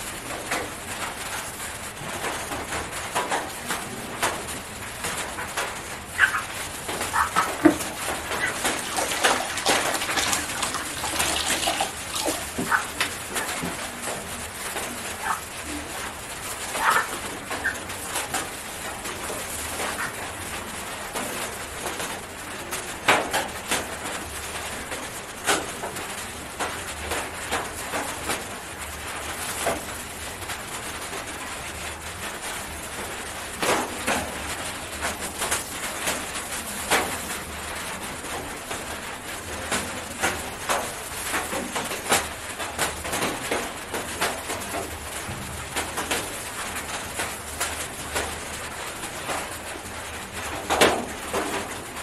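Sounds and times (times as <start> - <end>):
plastic gloves crinkling: 6.1 - 18.4.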